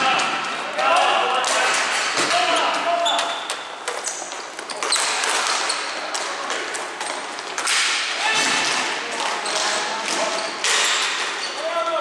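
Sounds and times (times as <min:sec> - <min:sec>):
shoe squeaks: 0:02.4 - 0:06.0, 0:09.4 - 0:10.7.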